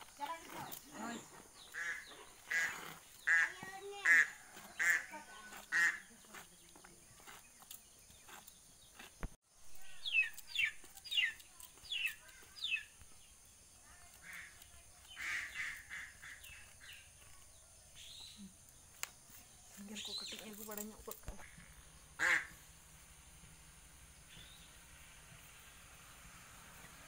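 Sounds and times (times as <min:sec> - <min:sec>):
ducks quacking: 0:01.7 - 0:05.1, 0:15.1 - 0:16.7, 0:22.2 - 0:22.6.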